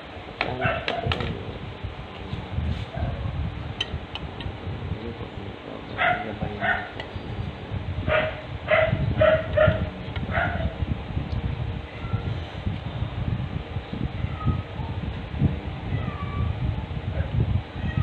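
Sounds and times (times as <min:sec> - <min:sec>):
dog barking: 0:00.6 - 0:01.2, 0:02.9 - 0:03.3, 0:06.0 - 0:07.0, 0:08.1 - 0:10.7.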